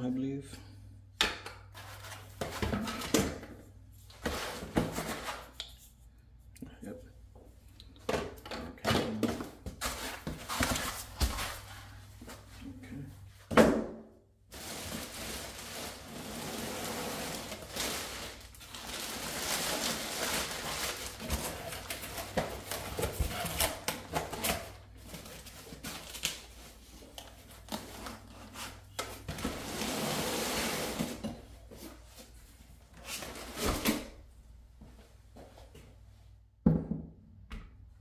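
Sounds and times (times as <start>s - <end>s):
plastic bag crinkling: 14.5s - 22.7s.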